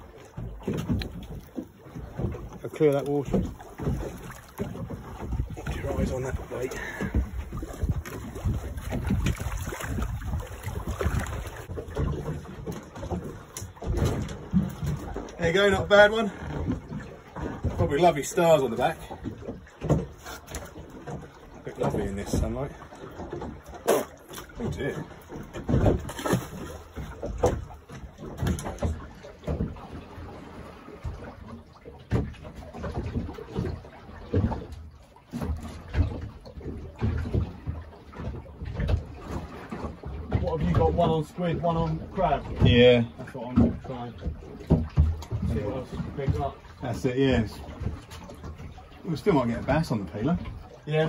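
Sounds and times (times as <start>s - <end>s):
wind buffeting microphone: 0.0s - 18.0s
water sloshing against boat hull: 0.0s - 51.0s.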